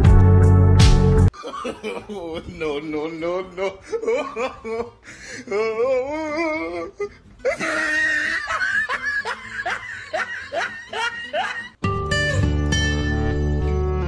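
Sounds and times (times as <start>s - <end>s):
woman laughing hard: 1.3s - 2.5s, 3.6s - 5.6s, 6.5s - 11.8s.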